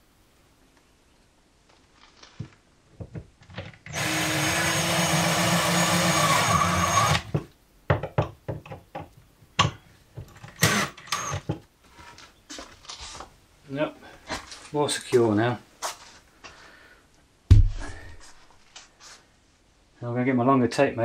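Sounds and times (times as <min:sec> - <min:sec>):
power drill driving a screw: 0:03.9 - 0:07.3, 0:10.6 - 0:11.5.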